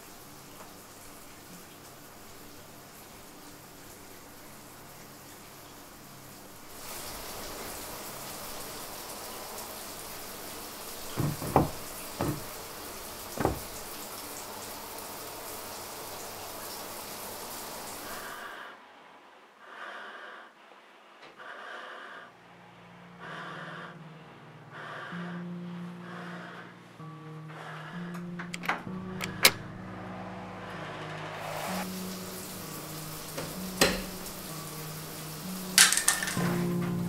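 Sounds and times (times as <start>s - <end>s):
sharp knocks: 11.2s - 12.6s, 13.4s - 13.8s
breathing through gas mask: 23.2s - 24.0s, 24.7s - 26.8s.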